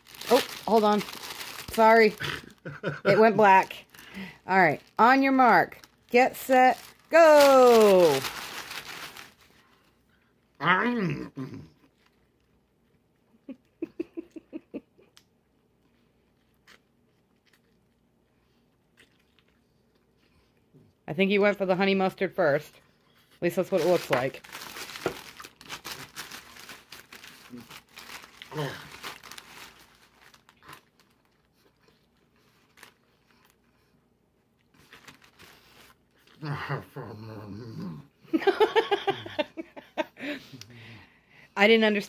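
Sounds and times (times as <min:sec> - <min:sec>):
man chewing food: 0:15.0 - 0:21.0, 0:30.4 - 0:36.4
man chewing: 0:15.2 - 0:20.7.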